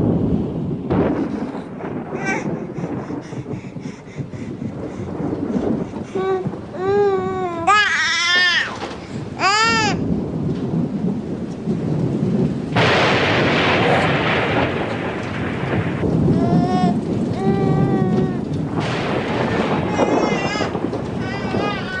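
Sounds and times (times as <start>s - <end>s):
rain: 0.0s - 22.0s
rumbling thunder: 0.0s - 22.0s
baby crying: 2.1s - 3.1s, 5.6s - 10.0s, 16.3s - 18.5s, 19.8s - 22.0s.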